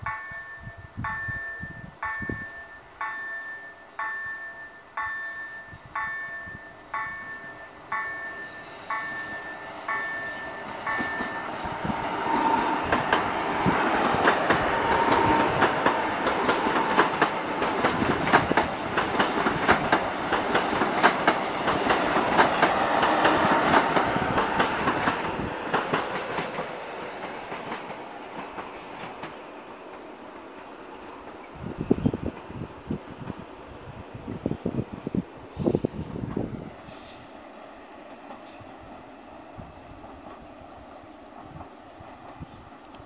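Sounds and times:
level crossing warning bells: 0:00.0 - 0:11.8
train wheels clattering over rail joints: 0:10.0 - 0:30.1.

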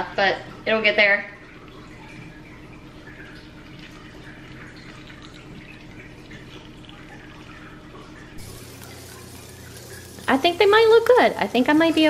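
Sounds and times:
shrimp sizzling in frying pan: 0:08.4 - 0:12.0.

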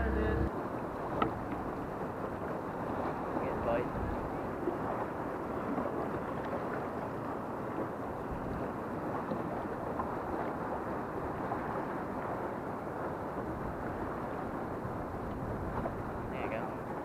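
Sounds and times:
choppy water around boat: 0:00.0 - 0:17.0
wind rushing over microphone: 0:02.8 - 0:04.5.

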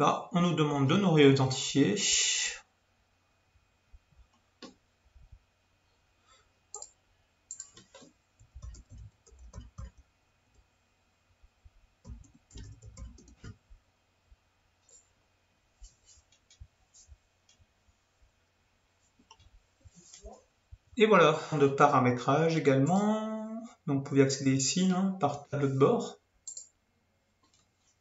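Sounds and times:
keyboard typing: 0:06.7 - 0:10.1, 0:12.0 - 0:13.6, 0:26.4 - 0:26.8.

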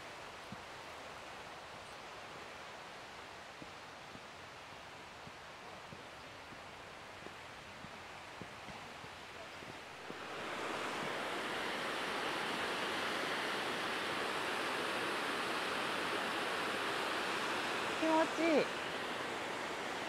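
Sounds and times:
water rushing over rocks: 0:10.0 - 0:20.0.

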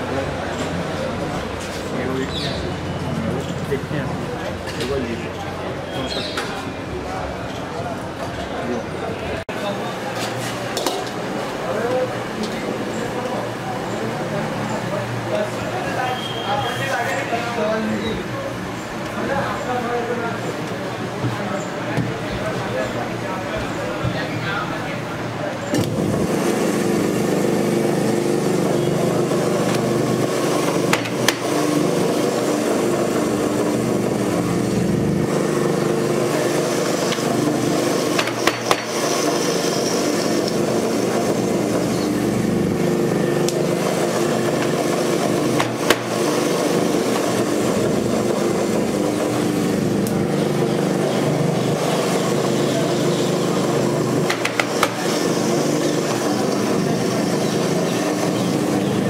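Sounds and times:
machine motor humming: 0:25.6 - 0:59.0.

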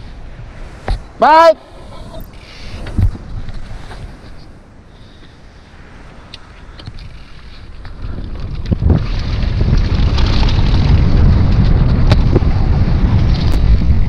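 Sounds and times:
wind buffeting microphone: 0:00.0 - 0:14.0
tyre rumble: 0:07.5 - 0:14.0
bike knocking over bumps: 0:07.8 - 0:14.0.

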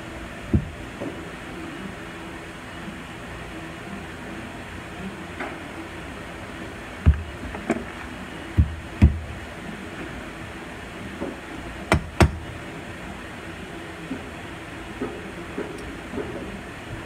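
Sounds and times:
steady background hum: 0:00.0 - 0:17.0
sharp knocks: 0:00.5 - 0:00.8.

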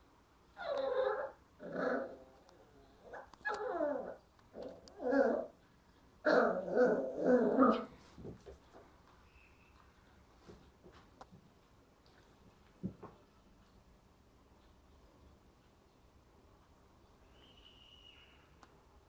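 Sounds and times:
puppy barking and whining: 0:00.6 - 0:05.6, 0:06.2 - 0:08.0.

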